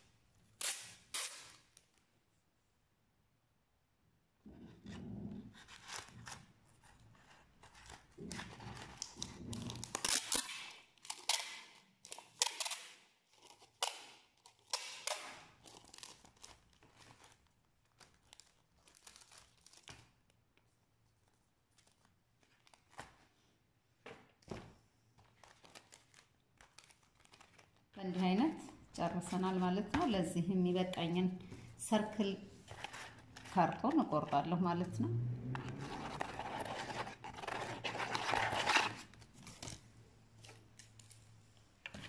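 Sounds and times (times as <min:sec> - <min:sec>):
crackle of tape and cardboard: 0:00.0 - 0:02.1, 0:05.6 - 0:23.4, 0:25.1 - 0:28.0, 0:35.8 - 0:42.0
packing tape ripping off roll: 0:00.5 - 0:02.0, 0:08.2 - 0:20.2.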